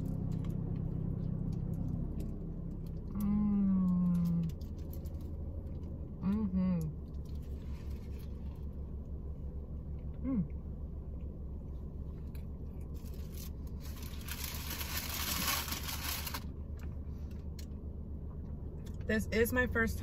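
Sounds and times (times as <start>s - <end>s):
low hum: 0.0s - 20.0s
person humming: 10.2s - 10.5s
wrapping crinkling and rustling: 12.9s - 16.5s.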